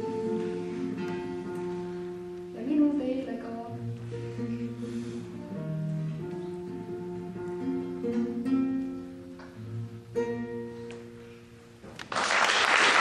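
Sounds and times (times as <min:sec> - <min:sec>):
nylon-string guitar chords: 0:00.0 - 0:12.0
audience applause: 0:12.0 - 0:13.0.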